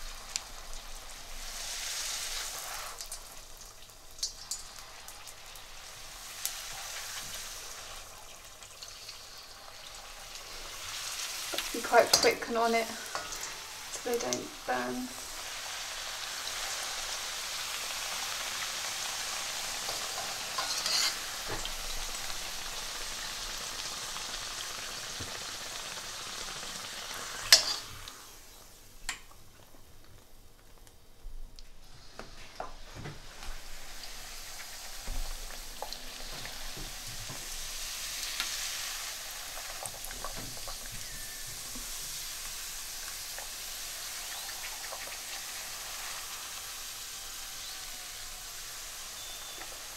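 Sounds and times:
dough sizzling in hot oil: 0.0 - 31.2, 31.8 - 49.9.

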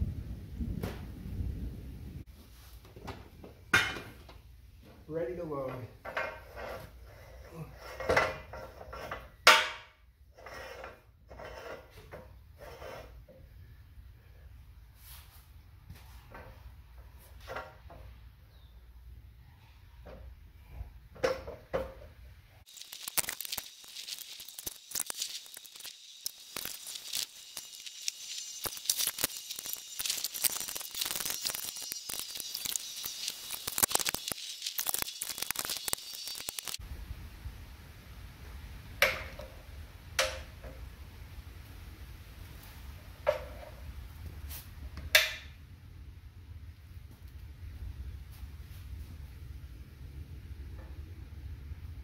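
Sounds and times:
ratchet clicking and crackling: 22.7 - 36.8.

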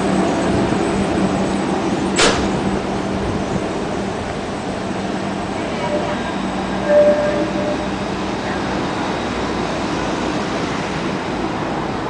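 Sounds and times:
tram rumbling along track: 0.0 - 12.0
short high tone: 5.8 - 8.0.

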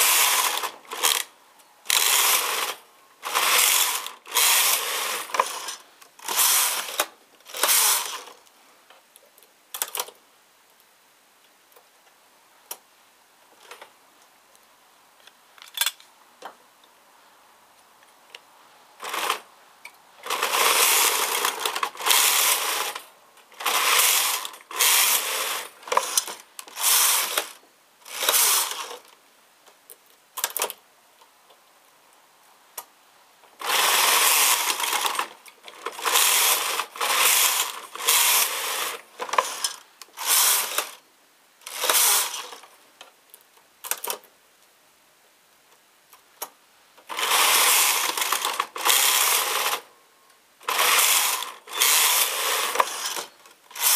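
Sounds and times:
knitting machine carriage clatter: 33.6 - 41.0, 47.1 - 49.8.

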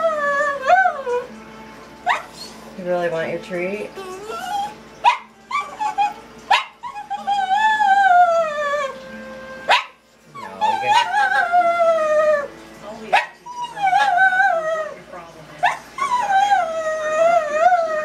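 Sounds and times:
dog whining: 0.0 - 1.3, 2.0 - 2.7, 3.9 - 12.6, 13.2 - 15.0, 15.6 - 18.0
dog yipping: 2.0 - 2.6, 4.0 - 9.0, 9.6 - 12.5, 13.1 - 15.0, 15.6 - 18.0.

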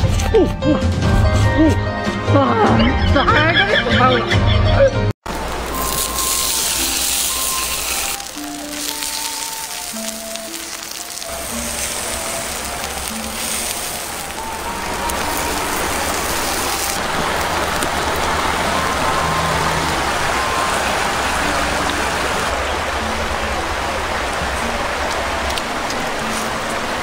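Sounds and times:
meat sizzling on hot stone: 5.3 - 21.9
soft background music: 5.7 - 17.0.

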